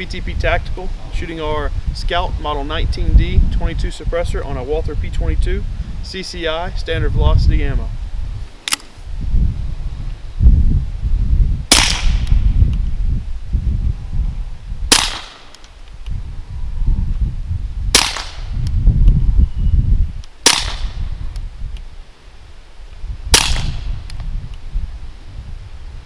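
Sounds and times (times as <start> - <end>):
suppressed pistol shots: 11.7 - 12.4, 14.9 - 15.7, 17.9 - 18.5, 20.4 - 21.0, 23.3 - 23.9.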